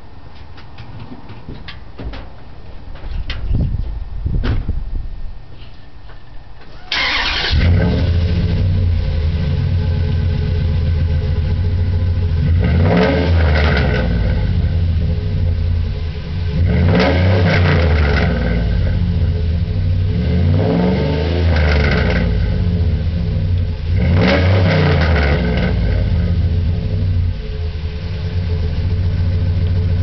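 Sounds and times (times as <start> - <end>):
vv eight engine revving: 6.9 - 30.0.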